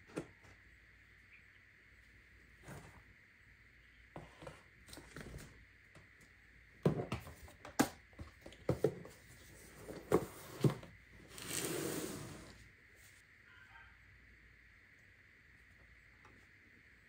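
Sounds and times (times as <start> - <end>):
box sliding across desk: 9.8 - 12.7.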